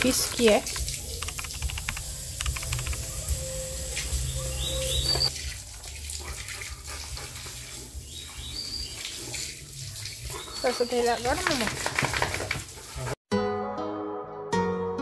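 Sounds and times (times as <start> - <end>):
water running from hose: 0.0 - 13.2
bird chirps: 4.1 - 5.3.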